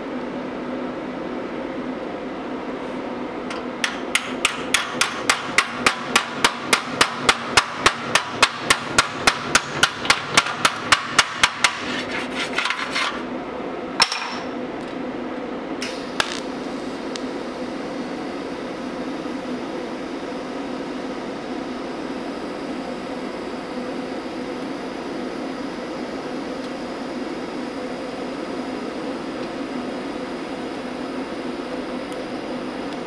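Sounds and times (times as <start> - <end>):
hammer tapping sheet steel: 3.5 - 13.2
welding arc hissing: 15.8 - 17.1.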